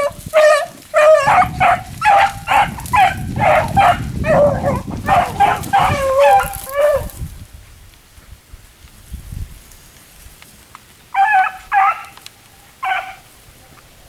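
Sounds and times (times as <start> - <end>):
dogs baying: 0.0 - 7.2, 11.2 - 12.2, 12.8 - 13.3.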